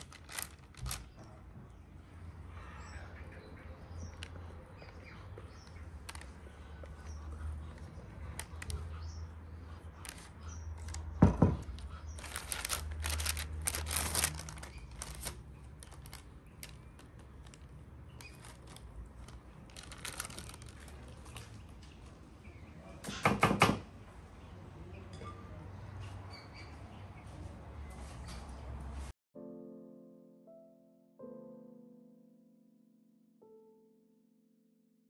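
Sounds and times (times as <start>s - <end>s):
paper rustling: 0.0s - 1.5s, 5.6s - 8.9s, 10.0s - 21.8s.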